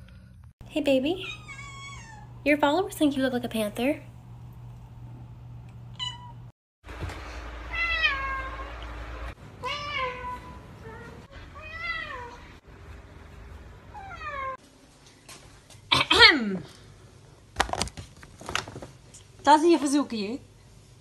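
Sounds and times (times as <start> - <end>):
cat meowing: 1.2 - 2.3, 6.0 - 6.4.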